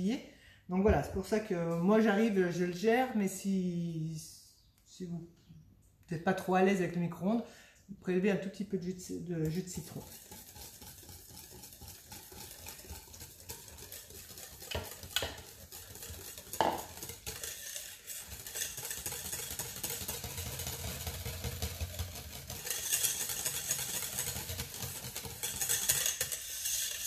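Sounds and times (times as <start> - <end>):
whisk scraping metal bowl: 8.8 - 27.0.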